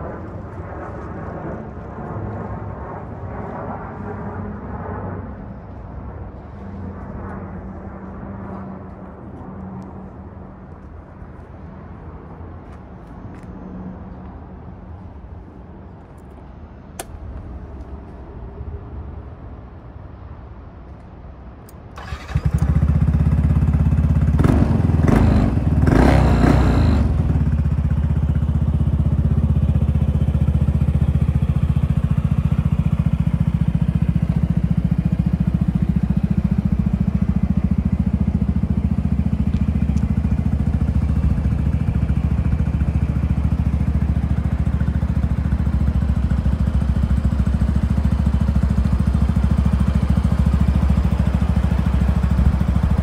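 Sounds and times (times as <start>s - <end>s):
scooter engine idling: 22.0s - 53.0s.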